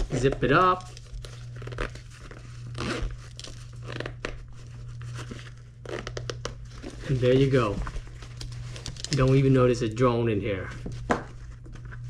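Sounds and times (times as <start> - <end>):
zipper closing: 1.4 - 4.3.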